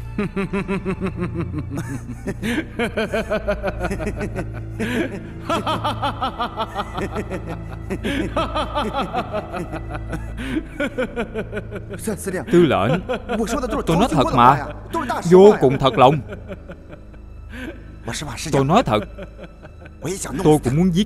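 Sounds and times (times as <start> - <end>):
background music drone: 0.0 - 21.0
men laughing: 0.2 - 20.8.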